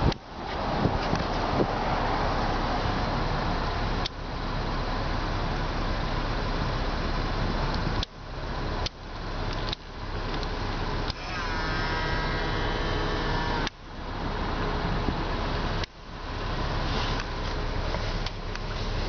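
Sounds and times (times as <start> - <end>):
car cabin noise: 8.8 - 19.0
mirror fold motor whining: 11.1 - 13.8.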